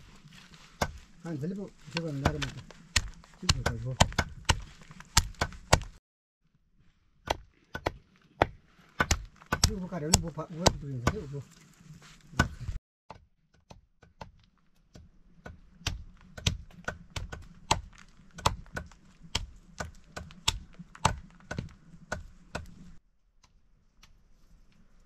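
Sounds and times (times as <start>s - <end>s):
knife chopping rope: 1.9s - 6.0s, 7.3s - 11.3s, 15.0s - 22.8s.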